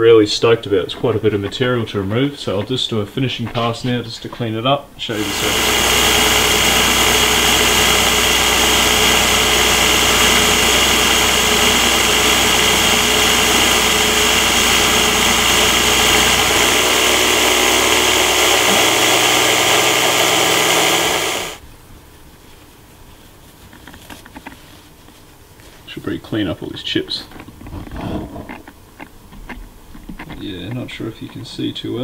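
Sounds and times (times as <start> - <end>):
mill spindle whine: 5.0 - 21.6
end mill cutting aluminium: 5.1 - 21.6.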